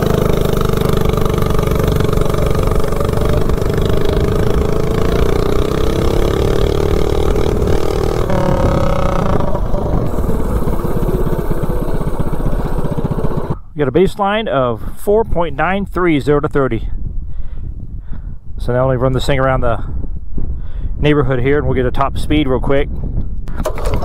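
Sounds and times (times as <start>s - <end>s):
minibike engine at full throttle: 0.0s - 13.7s, 23.5s - 24.0s
wind rush on microphone: 1.4s - 24.0s
person talking: 8.3s - 10.3s.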